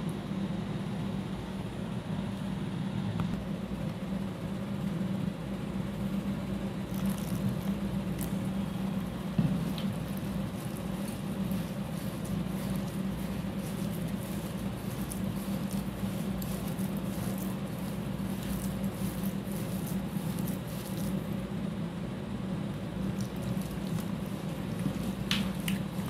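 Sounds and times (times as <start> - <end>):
steady low hum: 0.0 - 26.0
gritty wet squelching: 9.6 - 21.4, 23.0 - 26.0.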